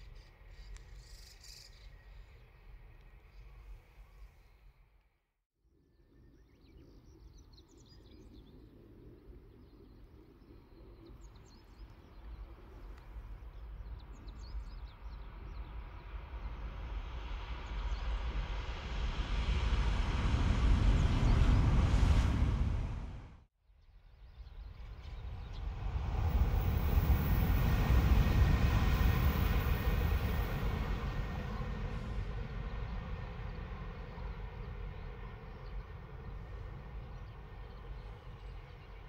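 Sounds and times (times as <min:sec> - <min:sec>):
faint bird chirps: 0:00.0 - 0:04.8
train passing at speed: 0:15.4 - 0:23.5, 0:24.6 - 0:39.0.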